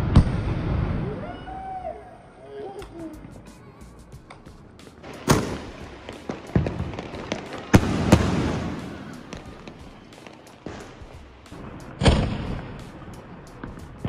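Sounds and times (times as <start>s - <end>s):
firework crackling hiss: 3.2s - 14.0s
firework bangs: 4.8s - 14.0s.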